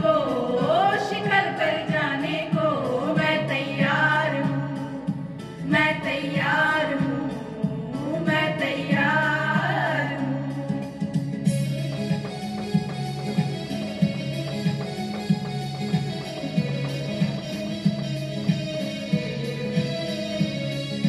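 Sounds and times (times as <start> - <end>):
women singing: 0.0 - 11.7
low instrumental accompaniment: 10.2 - 21.0.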